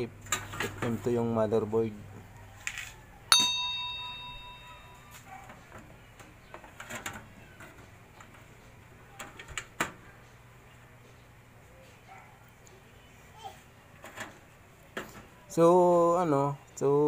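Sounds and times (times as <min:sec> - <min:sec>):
bell-like chime: 0:03.3 - 0:05.2.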